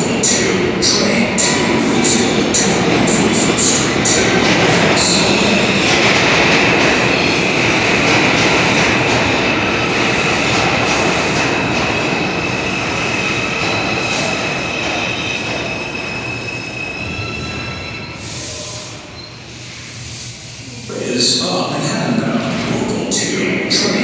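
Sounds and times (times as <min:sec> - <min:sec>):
train rumble: 0:00.0 - 0:24.0
train wheels squealing: 0:09.5 - 0:20.3.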